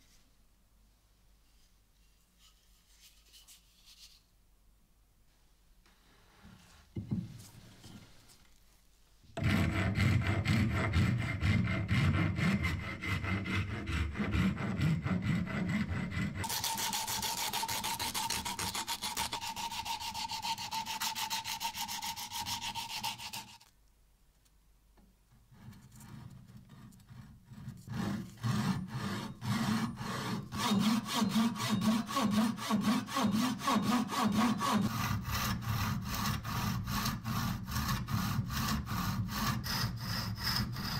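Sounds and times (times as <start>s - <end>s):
sandpaper rubbing on wood: 16.4s - 23.6s.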